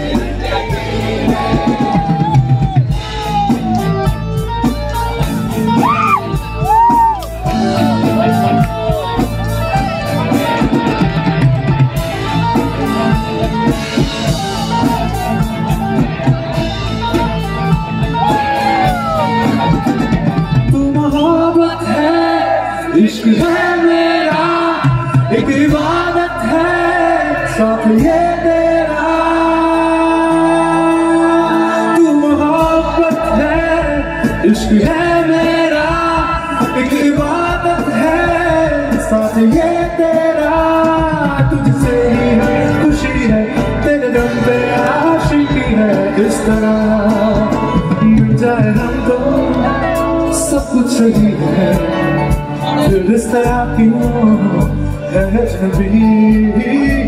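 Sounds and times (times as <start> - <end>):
drums: 0.0 - 57.0
guitar: 0.0 - 57.0
keyboard: 0.0 - 57.0
man singing romantic ballad: 20.5 - 57.0.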